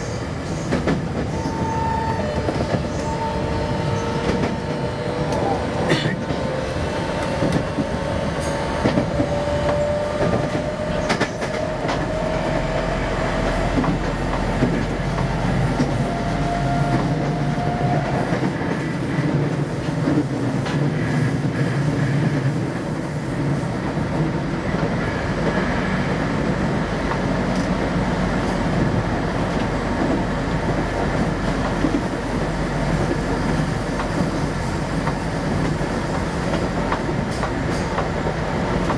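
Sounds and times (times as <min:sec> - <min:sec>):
train wheels rumbling on rails: 0:00.0 - 0:38.9
rail-joint clicks: 0:00.5 - 0:03.2, 0:03.9 - 0:12.8, 0:13.4 - 0:16.2, 0:27.0 - 0:38.9.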